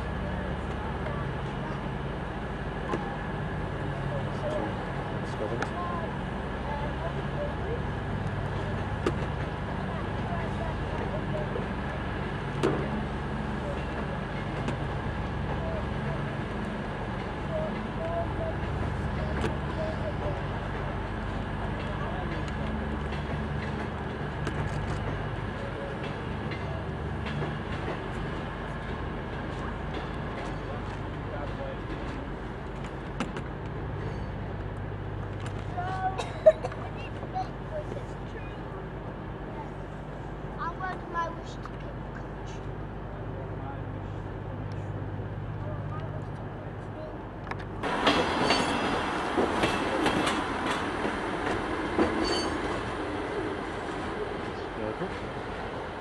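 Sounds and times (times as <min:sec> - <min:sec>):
train diesel engines humming: 0:00.0 - 0:56.0
wheels clicking over rail joints: 0:07.8 - 0:38.4, 0:45.7 - 0:56.0
faint wheel squeals: 0:52.2 - 0:52.8.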